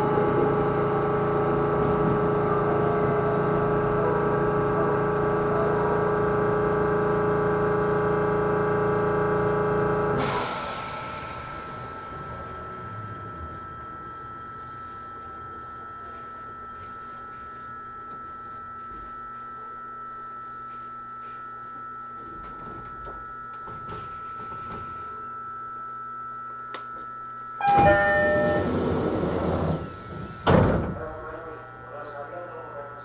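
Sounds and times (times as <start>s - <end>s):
train humming: 0.0s - 6.0s, 8.5s - 18.6s, 27.6s - 33.0s
sliding doors shutting with thud: 27.6s - 31.0s
door-closing chime: 27.6s - 31.1s.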